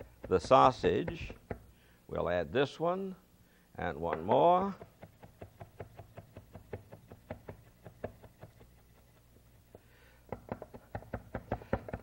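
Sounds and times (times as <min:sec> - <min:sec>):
knife chopping on wooden board: 0:00.0 - 0:01.7, 0:04.1 - 0:12.0.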